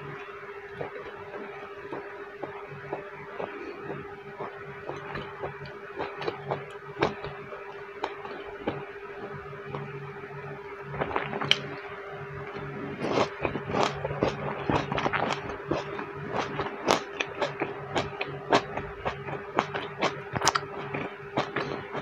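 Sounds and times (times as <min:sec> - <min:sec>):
steady low hum: 0:00.0 - 0:22.0
crisp chewing crunches: 0:00.8 - 0:07.4, 0:11.0 - 0:11.8, 0:12.5 - 0:22.0.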